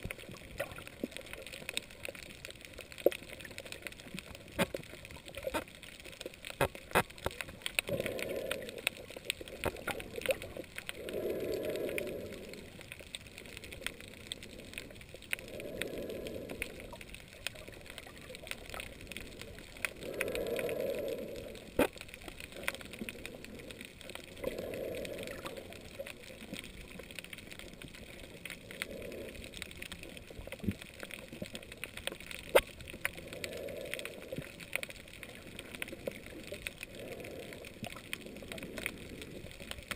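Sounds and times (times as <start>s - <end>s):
sharp clicks and crackles in water: 0.0s - 39.9s
snorkeler breathing underwater: 7.9s - 9.0s, 10.9s - 12.8s, 13.5s - 17.0s, 20.0s - 21.7s.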